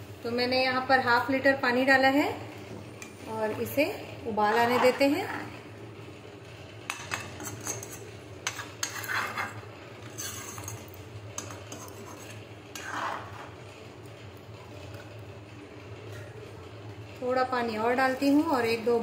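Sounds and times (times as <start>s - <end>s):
steady low hum: 0.0s - 19.0s
metal ladle scraping a pan: 6.9s - 13.6s.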